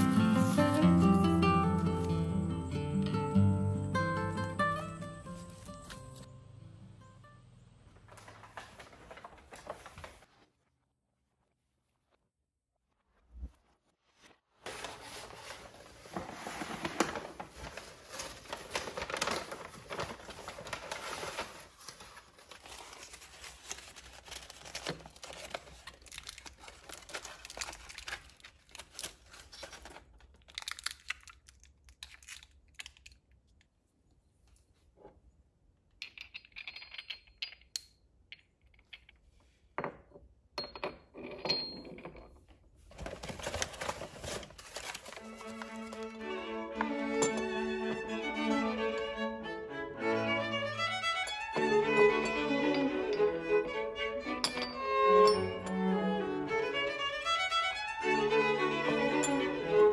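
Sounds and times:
rustling and tearing: 13.2s - 33.1s, 42.9s - 46.2s.

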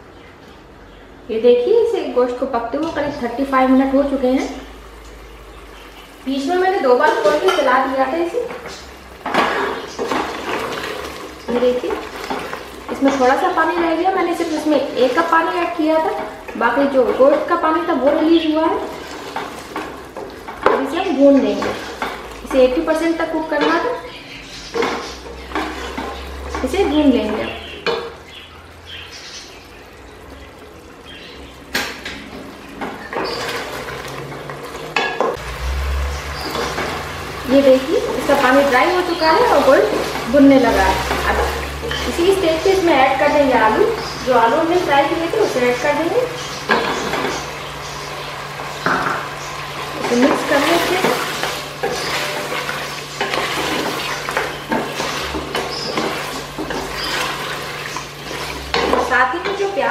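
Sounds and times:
curry sizzling: 0.0s - 59.9s
wooden spoon scraping a pot: 8.4s - 22.6s, 24.6s - 28.2s, 32.8s - 48.0s, 49.1s - 59.7s
spatula scraping a metal pot: 50.1s - 59.7s.

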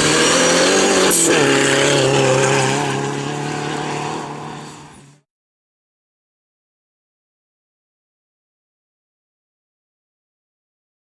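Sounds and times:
rally car engine revving: 0.0s - 5.2s.

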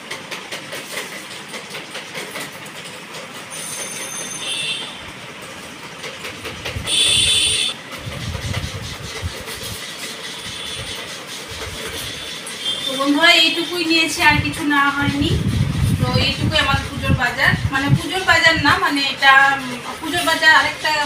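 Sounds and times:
steady background noise: 0.0s - 21.0s
faint high squeal: 3.5s - 4.8s
high whistle-like tone: 6.9s - 7.8s.

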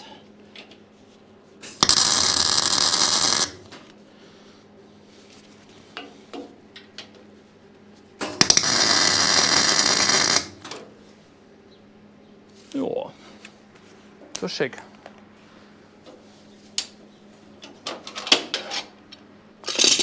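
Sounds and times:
welding arc crackling: 1.7s - 3.8s, 8.4s - 10.7s.

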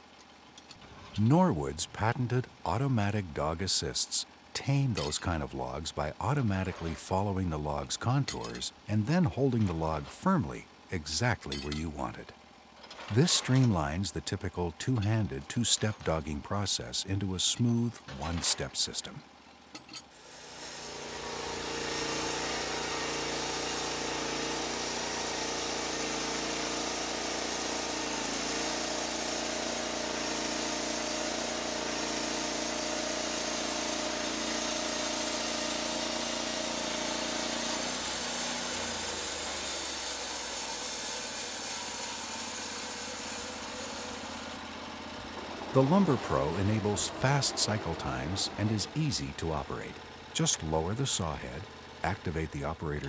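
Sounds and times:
sawmill engine running: 20.2s - 53.0s.

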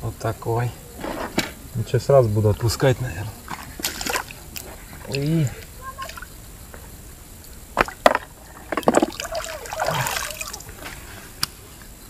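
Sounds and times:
water splashing: 2.6s - 6.4s, 7.7s - 11.1s
water sloshing and dripping: 3.4s - 6.3s, 7.8s - 11.1s.

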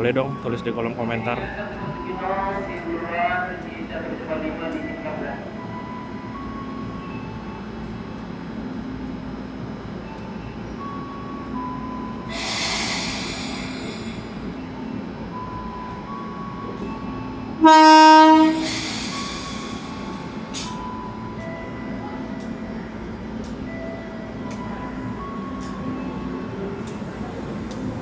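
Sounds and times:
air hiss: 12.3s - 14.4s, 18.6s - 20.1s
train horn blast: 17.6s - 19.1s.

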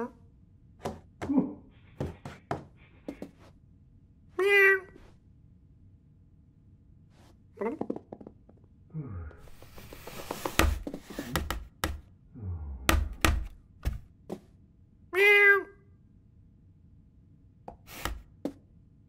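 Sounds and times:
cartoon cat meow: 4.4s - 5.0s, 15.1s - 15.9s.

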